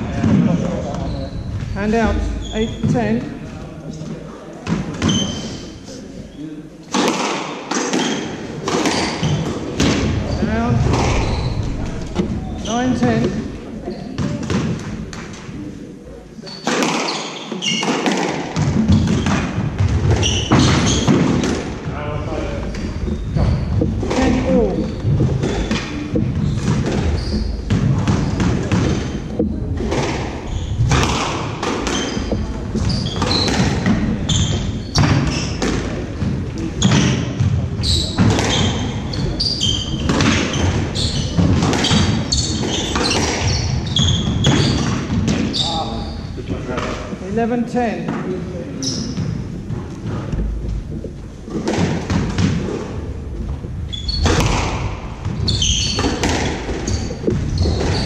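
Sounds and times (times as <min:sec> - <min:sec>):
court shoes squeaking: 0:00.2 - 0:15.7, 0:16.4 - 0:21.9, 0:22.6 - 0:47.5, 0:48.1 - 0:58.0
footsteps on wooden floor: 0:22.7 - 0:28.1, 0:49.2 - 0:53.9
squash ball knocks: 0:23.4 - 0:37.6, 0:51.5 - 0:53.0, 0:54.2 - 0:58.0.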